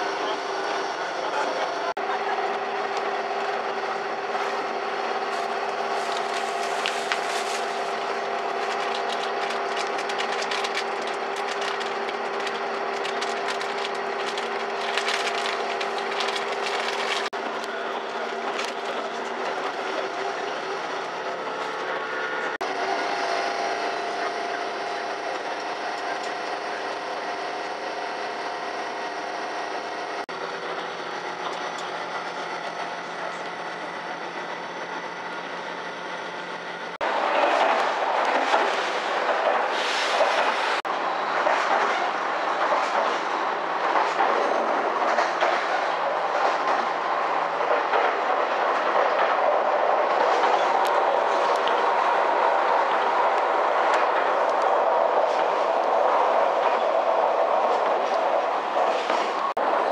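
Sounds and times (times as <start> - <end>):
train engine drone: 0.0 - 59.9
quick clicks and rattles: 8.5 - 17.3.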